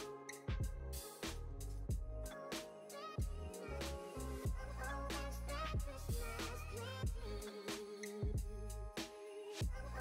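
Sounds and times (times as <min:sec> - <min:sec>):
background music with steady drum beat: 0:00.0 - 0:10.0
bass notes: 0:00.5 - 0:02.3, 0:03.2 - 0:07.4.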